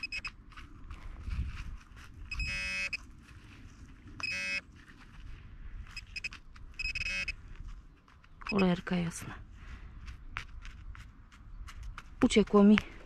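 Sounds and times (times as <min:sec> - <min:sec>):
metal detector pinpointer buzzing: 0:00.0 - 0:00.4, 0:02.3 - 0:03.0, 0:04.2 - 0:04.6, 0:05.9 - 0:07.4
soil and glove rustling: 0:00.0 - 0:13.0.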